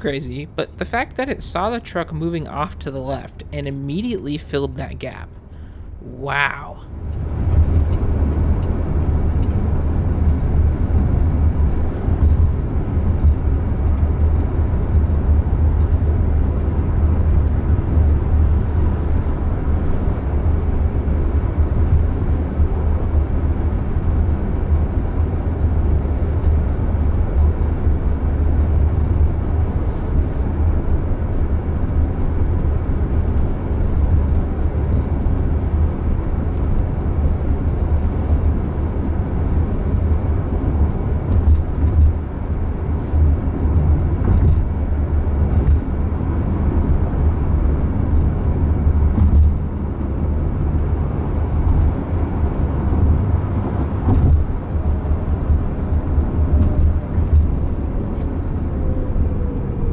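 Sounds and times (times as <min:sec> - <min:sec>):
road and tyre noise: 0:00.0 - 0:59.9.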